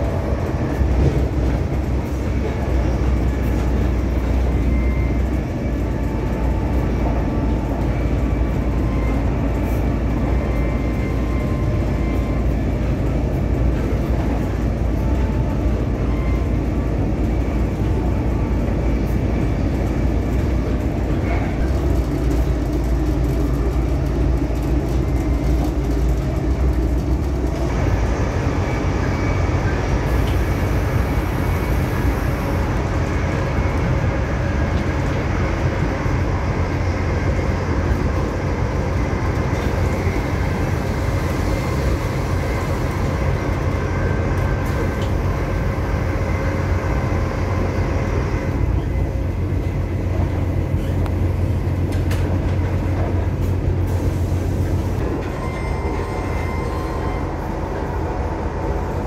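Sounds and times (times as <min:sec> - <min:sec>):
diesel train engine hum: 0:00.0 - 0:59.0.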